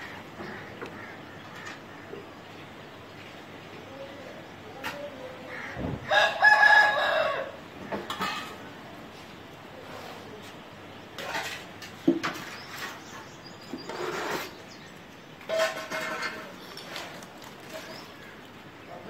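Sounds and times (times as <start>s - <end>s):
quiet clucks and calls: 0.0s - 19.0s
rooster crowing: 6.0s - 7.6s.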